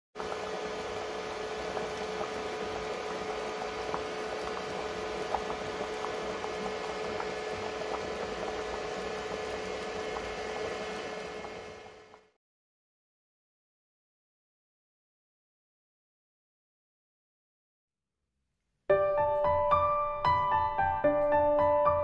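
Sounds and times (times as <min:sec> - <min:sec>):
soup boiling with bubbling: 0:00.2 - 0:12.3
steady hum: 0:00.2 - 0:12.3.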